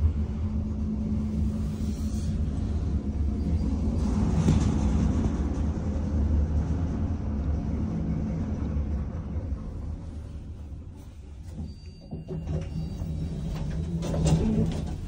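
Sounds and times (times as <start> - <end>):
faint hum: 0.0 - 15.0
lift rumbling: 0.0 - 15.0.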